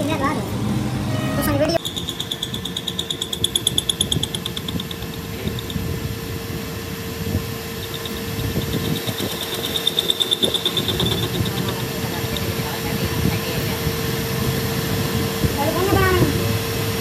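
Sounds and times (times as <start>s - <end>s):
high pulsing squeal: 0.0s - 13.3s
lathe motor hum: 1.8s - 15.2s.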